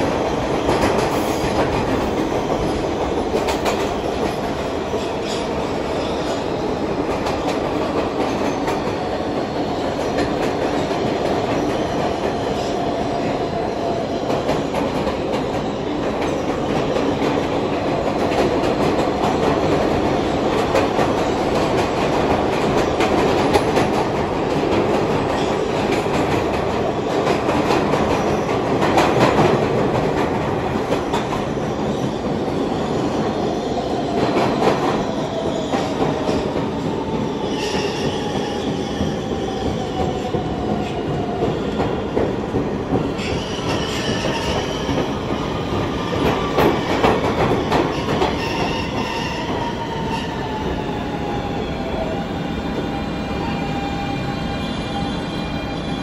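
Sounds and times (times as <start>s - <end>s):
subway car rumble: 0.0s - 56.0s
rail clicks: 6.3s - 32.5s, 34.0s - 52.1s.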